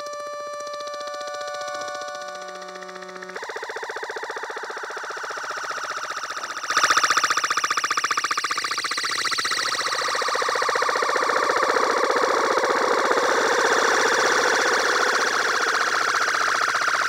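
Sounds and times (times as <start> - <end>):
synthesizer pulsing tone: 0.0 - 17.0
bright synthesizer note: 1.0 - 4.7.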